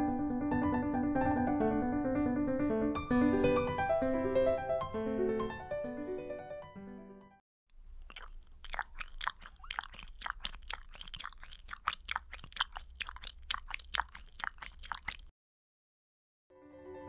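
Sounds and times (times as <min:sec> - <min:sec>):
crunchy chewing: 0:07.8 - 0:15.3.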